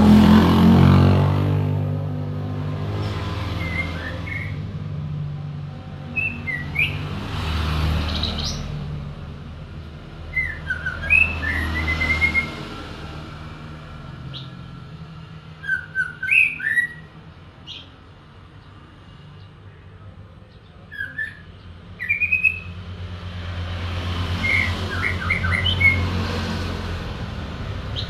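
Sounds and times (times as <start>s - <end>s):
songbird whistling phrases: 3.6s - 4.6s, 6.1s - 7.0s, 10.3s - 12.6s, 15.6s - 17.1s, 20.9s - 22.7s.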